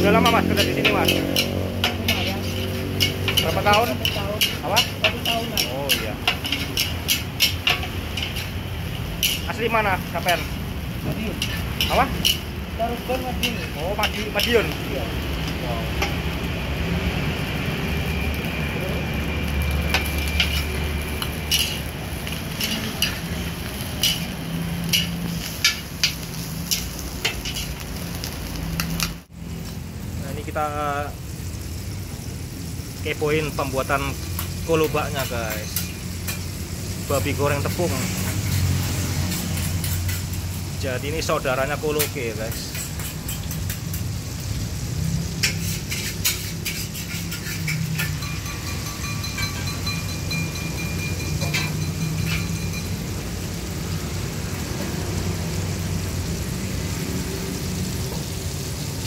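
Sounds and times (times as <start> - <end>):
food sizzling: 0.0 - 59.0
ladle clanking against wok: 0.6 - 9.6, 20.0 - 27.8, 45.2 - 53.1.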